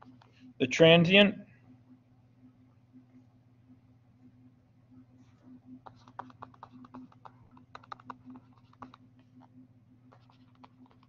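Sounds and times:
steady low hum: 0.0s - 11.0s
stylus tapping on tablet: 5.8s - 11.0s.

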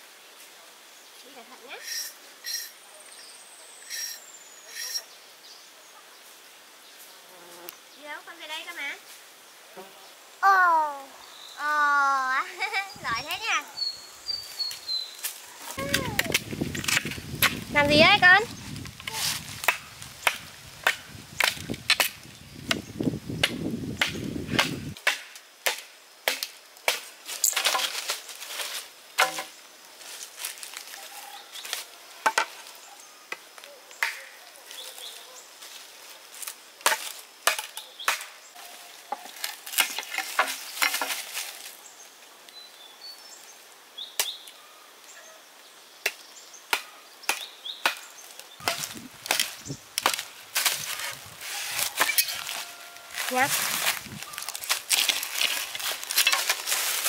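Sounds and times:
chopping wood knocks: 23.4s - 27.0s, 29.2s - 29.5s.

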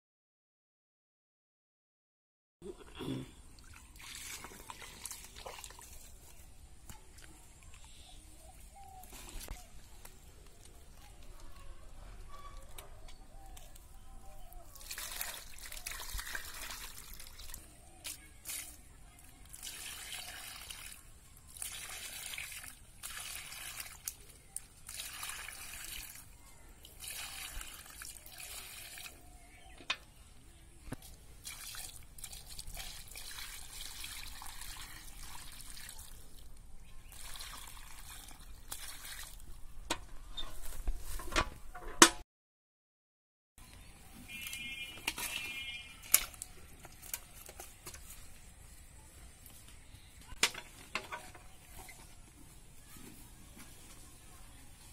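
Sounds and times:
water trickling and sloshing: 3.4s - 7.9s, 14.4s - 29.5s, 31.0s - 39.8s
water poured from bucket: 3.6s - 6.4s, 14.7s - 18.8s, 19.4s - 29.2s, 31.4s - 39.6s.

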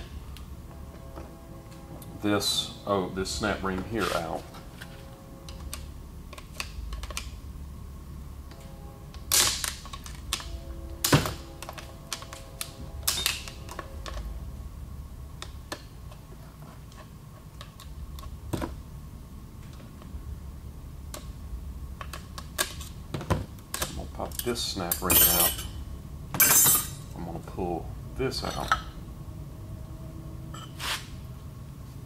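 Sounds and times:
ringing metal clanks: 24.9s - 25.8s, 26.4s - 27.1s.

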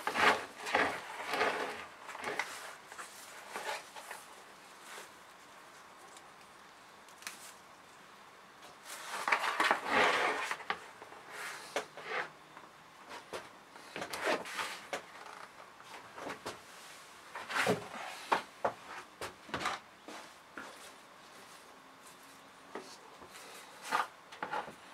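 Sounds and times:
plant rustling and scraping: 0.0s - 7.7s, 8.7s - 12.3s, 13.1s - 19.1s.

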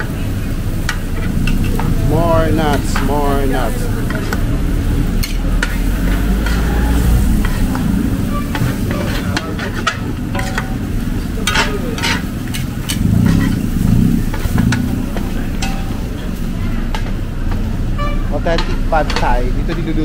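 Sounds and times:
metal utensils scraping a pan: 5.1s - 17.2s.

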